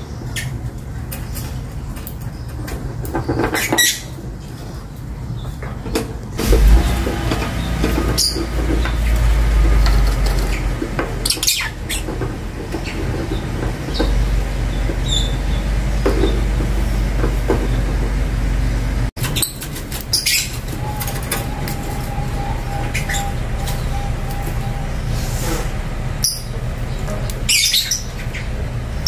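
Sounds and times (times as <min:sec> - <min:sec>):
steady low rumble: 0:06.3 - 0:19.2.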